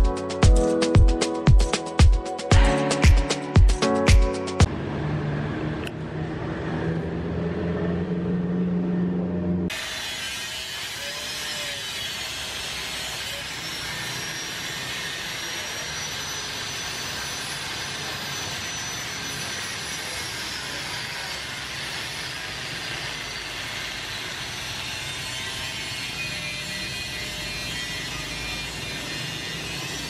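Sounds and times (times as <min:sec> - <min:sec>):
angle grinder cutting steel: 0:09.7 - 0:30.0.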